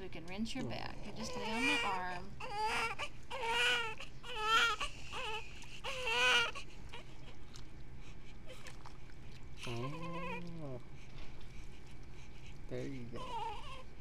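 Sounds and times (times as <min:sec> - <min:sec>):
baby crying: 0:01.1 - 0:07.0, 0:09.6 - 0:10.4, 0:13.2 - 0:13.9.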